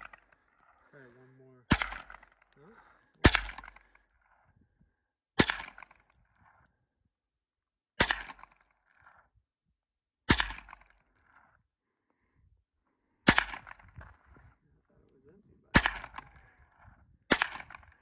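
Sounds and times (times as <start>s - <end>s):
rifle shots: 1.7s - 2.5s, 3.2s - 4.0s, 5.4s - 6.1s, 8.0s - 8.6s, 10.3s - 11.0s, 13.3s - 13.9s, 15.7s - 16.5s, 17.3s - 18.0s.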